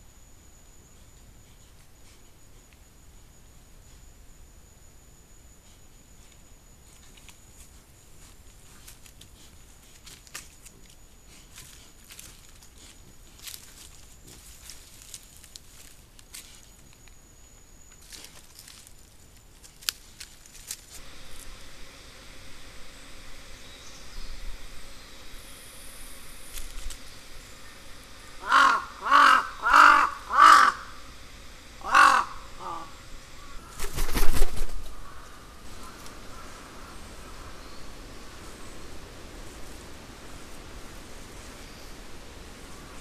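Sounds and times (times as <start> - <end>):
rustling in dry leaves: 8.2 - 17.0, 18.0 - 43.0
crow cawing: 28.3 - 31.1, 31.8 - 33.9, 34.9 - 37.6
rapid wing flaps: 33.6 - 35.2.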